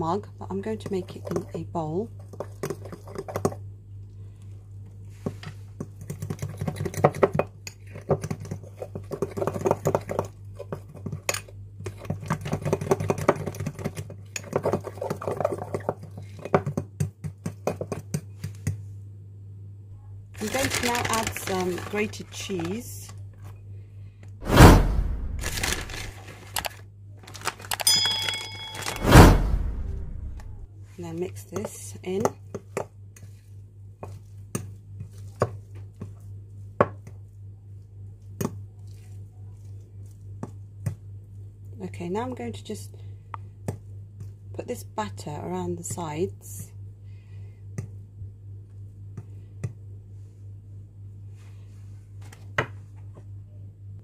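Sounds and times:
steady low hum: 18.3s - 27.2s, 27.9s - 54.0s
cheese rustling into bowl: 20.4s - 22.9s, 25.4s - 28.9s
low hum: 24.4s - 26.2s, 27.9s - 30.8s
electronic chime: 27.9s - 29.3s.

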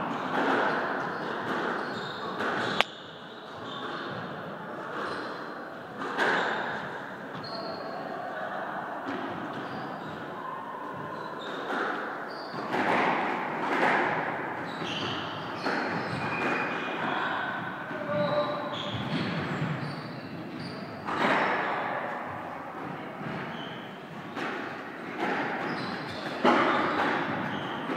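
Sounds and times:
shoes squeaking on wooden floor: 1.1s - 2.8s, 6.3s - 7.8s, 14.6s - 17.0s, 18.0s - 21.1s, 25.2s - 27.9s.

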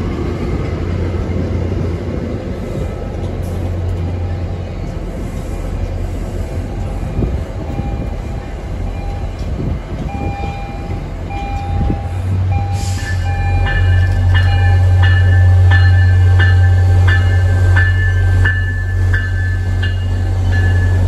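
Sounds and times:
diesel locomotive engine hum: 0.0s - 21.0s
locomotive bell ringing: 10.1s - 21.0s.

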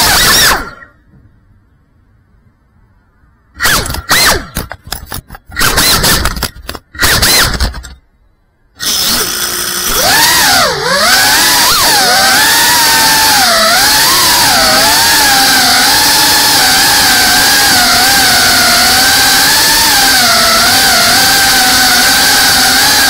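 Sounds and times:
drone motors whining: 0.0s - 1.0s, 3.6s - 8.0s, 8.8s - 23.0s.

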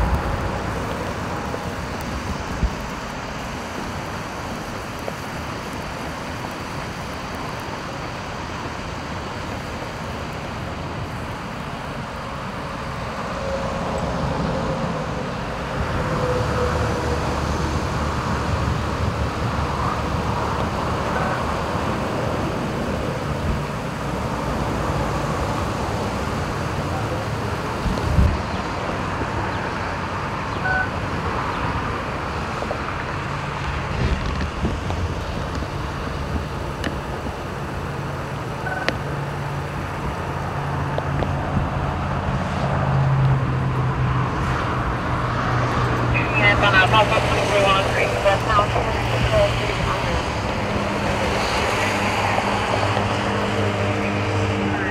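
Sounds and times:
tyre hiss on wet road: 0.0s - 16.2s
rumble of passing vehicles: 0.0s - 54.9s.

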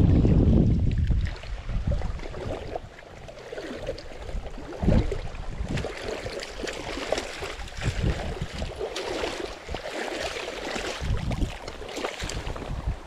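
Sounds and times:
water sloshing and splashing: 0.0s - 13.0s
wind gusts on microphone: 0.0s - 13.0s.

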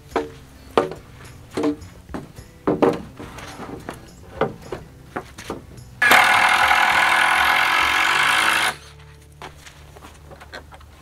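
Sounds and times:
wooden board knocking on frame: 1.6s - 3.1s
power driver driving screw: 6.0s - 8.8s.

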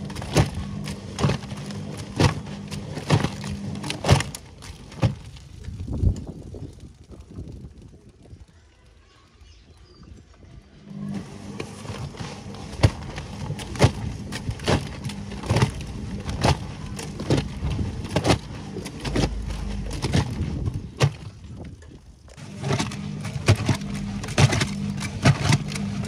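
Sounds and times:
wet laundry water slapping: 0.0s - 5.9s, 11.2s - 26.0s
washing machine motor hum: 0.0s - 6.4s, 10.8s - 26.0s.

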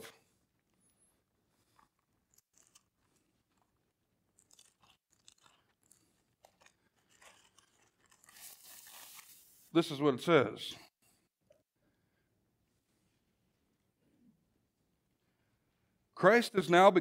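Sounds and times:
pages being turned: 6.4s - 9.7s.

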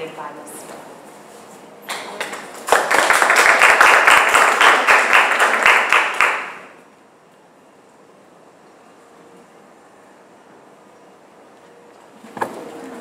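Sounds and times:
people applauding: 1.8s - 6.8s.

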